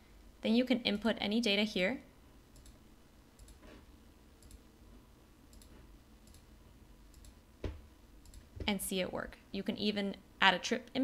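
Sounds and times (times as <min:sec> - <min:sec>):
faint computer mouse clicks: 0:02.6 - 0:02.8, 0:03.4 - 0:03.6, 0:04.4 - 0:04.6, 0:05.5 - 0:06.5, 0:07.1 - 0:07.4, 0:08.2 - 0:08.5.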